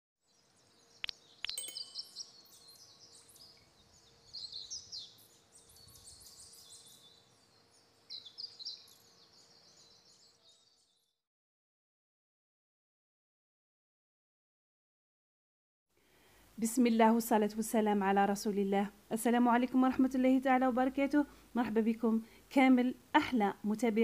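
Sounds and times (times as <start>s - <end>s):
small birds chirping: 0.3s - 11.2s
faint steady hum: 16.0s - 24.0s.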